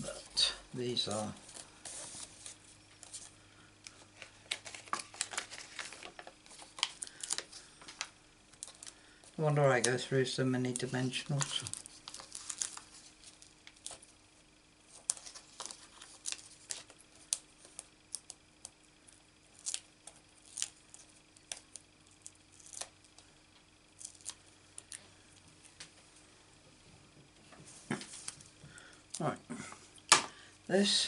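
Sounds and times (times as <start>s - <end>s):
paper and plastic crinkling: 1.0s - 14.1s, 14.9s - 18.3s.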